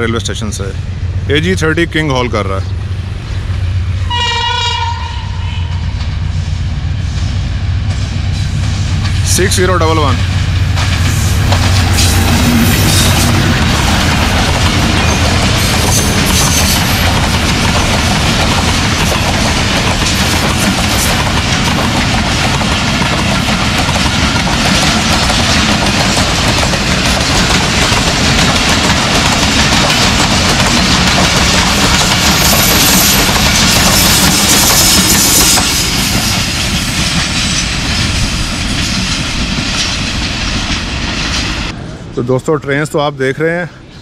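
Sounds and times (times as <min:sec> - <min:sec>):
train wheels clattering on rails: 0:07.0 - 0:41.8.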